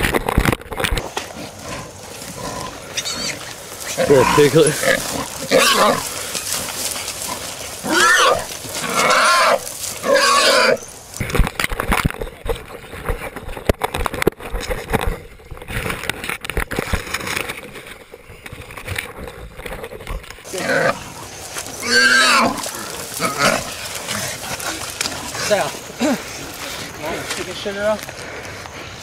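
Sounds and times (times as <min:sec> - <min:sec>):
wild hog calling: 0:01.0 - 0:11.2, 0:20.4 - 0:28.4.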